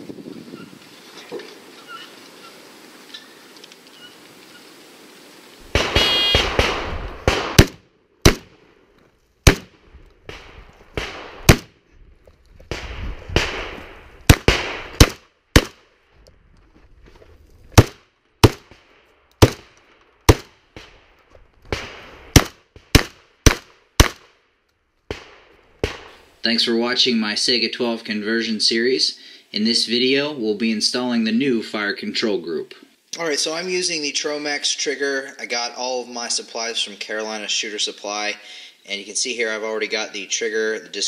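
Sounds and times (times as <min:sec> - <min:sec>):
wind noise: 0:00.0 - 0:07.7, 0:09.6 - 0:15.1, 0:16.1 - 0:17.8
shotgun shots: 0:05.6 - 0:08.8, 0:09.4 - 0:11.8, 0:12.7 - 0:15.9, 0:17.8 - 0:21.1, 0:21.7 - 0:24.4, 0:25.1 - 0:26.2.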